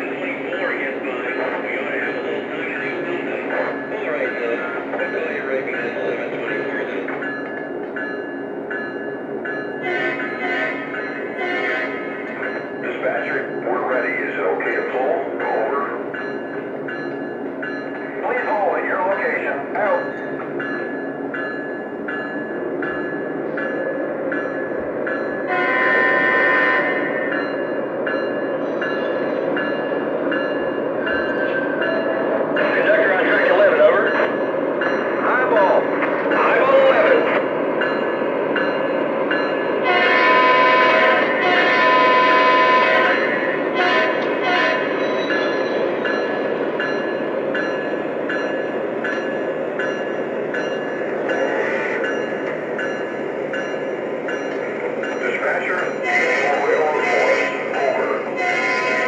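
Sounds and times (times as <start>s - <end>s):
electronic locomotive bell: 0.0s - 59.0s
train rumble: 0.0s - 59.0s
locomotive horn: 9.8s - 12.4s, 25.5s - 27.3s, 39.8s - 45.1s, 56.0s - 59.0s
horn blast: 25.5s - 27.1s, 58.4s - 59.0s.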